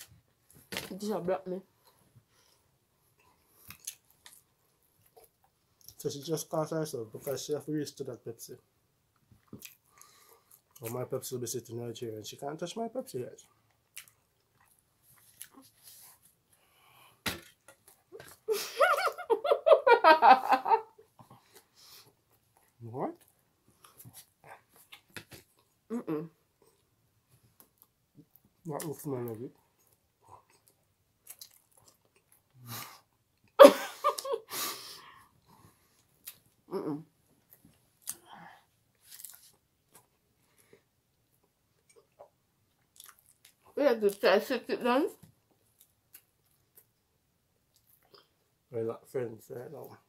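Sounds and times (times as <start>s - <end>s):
people eating and breathing: 1.8s - 3.9s, 9.8s - 10.8s, 15.0s - 17.3s, 21.1s - 22.7s, 32.5s - 33.2s, 34.4s - 36.2s, 38.0s - 39.5s, 40.3s - 41.0s
people chewing buns: 1.8s - 6.0s, 9.1s - 11.0s, 13.4s - 18.7s, 21.0s - 34.3s, 35.0s - 44.2s, 45.4s - 48.7s.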